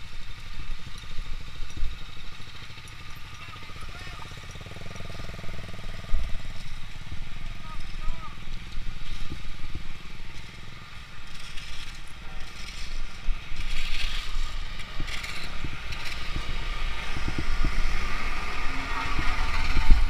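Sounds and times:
motorcycle engine rumble: 0.0s - 20.0s
wind on microphone: 6.0s - 10.3s, 11.8s - 20.0s.

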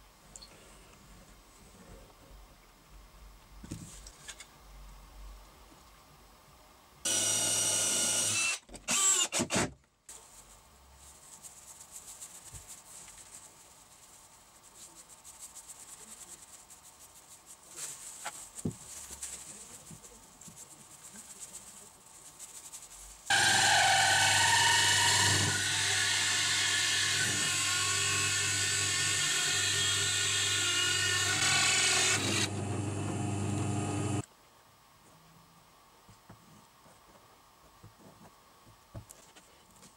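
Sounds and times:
drill press cutting plywood: 7.1s - 9.7s, 23.3s - 34.2s
cordless drill drilling into plywood: 7.1s - 9.8s, 23.3s - 34.2s
faint rubbing and handling: 10.1s - 23.3s.

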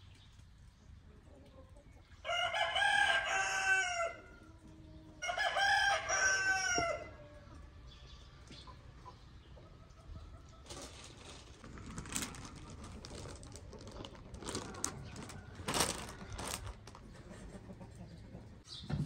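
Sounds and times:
plastic tablecloth rustling: 10.6s - 17.2s.

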